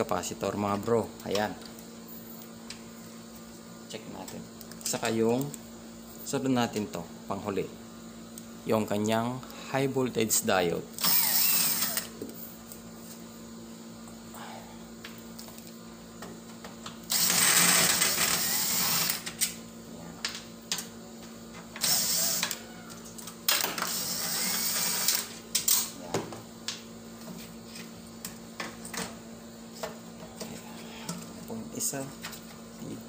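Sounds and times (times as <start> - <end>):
cordless drill running: 11.0 - 12.1, 17.1 - 19.2, 21.8 - 22.6, 23.8 - 25.2.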